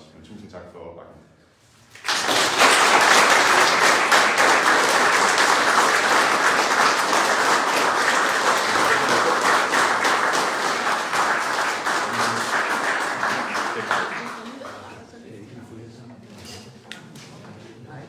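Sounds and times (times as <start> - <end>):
audience applauding: 1.9 - 15.0.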